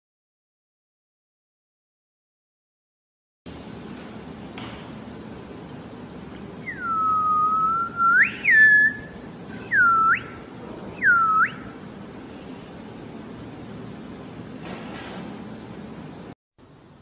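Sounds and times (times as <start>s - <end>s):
person whistling: 6.6s - 10.4s, 11.0s - 11.7s.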